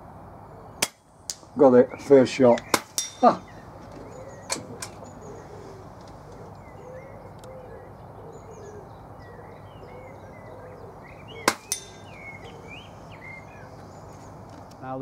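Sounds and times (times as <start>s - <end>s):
birds chirping and singing: 0.3s - 15.0s
pellet hitting steel target: 0.8s - 1.5s, 2.6s - 3.4s, 11.4s - 12.1s
air rifle shot: 2.6s - 3.1s, 11.4s - 12.0s.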